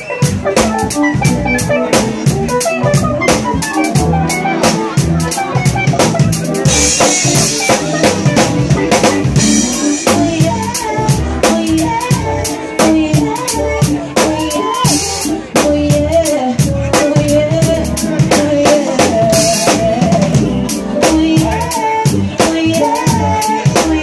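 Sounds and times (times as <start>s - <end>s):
drum beat: 0.0s - 24.0s
live band playing: 0.0s - 24.0s
woman singing wordless melody: 9.5s - 24.0s.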